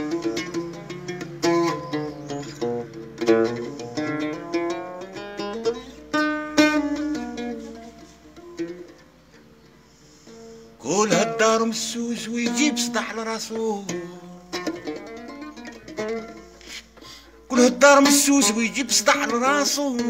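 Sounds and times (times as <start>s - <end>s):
mandole melody: 0.0s - 16.6s
person singing: 10.8s - 14.4s, 17.5s - 20.0s.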